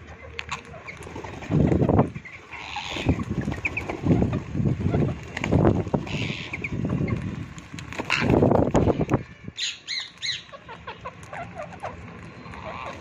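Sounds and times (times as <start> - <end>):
parakeet wings flapping: 0.2 - 9.1
parakeet calls: 2.0 - 5.2, 6.0 - 6.8, 9.6 - 13.0.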